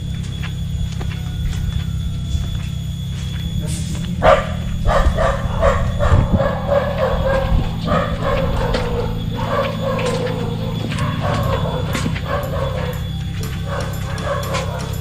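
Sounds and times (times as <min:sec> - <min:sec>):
steady low hum: 0:00.0 - 0:15.0
dog barking and yelping: 0:04.1 - 0:15.0.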